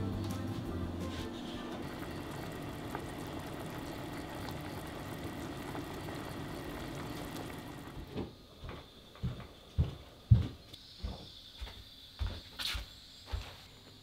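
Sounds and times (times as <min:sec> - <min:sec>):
thick sauce bubbling: 0:01.8 - 0:07.9.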